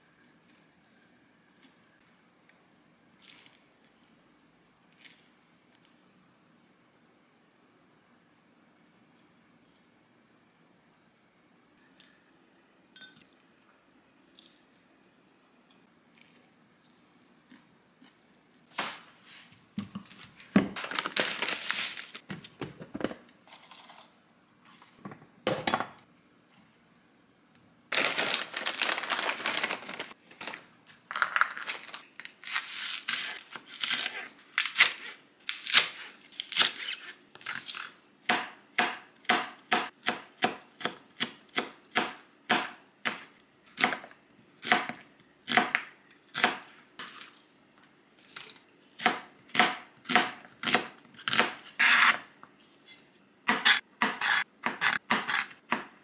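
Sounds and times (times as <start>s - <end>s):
plastic packaging crinkling and tearing: 20.8s - 22.2s, 27.9s - 37.8s.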